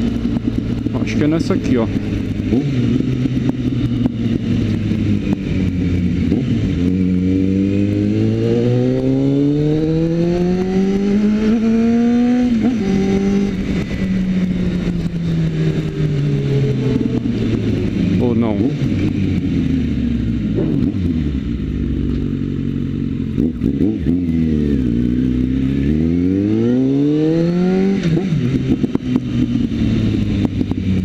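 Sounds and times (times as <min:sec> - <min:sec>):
wind noise: 0:00.0 - 0:21.6
motorcycle engine revving: 0:00.0 - 0:31.0.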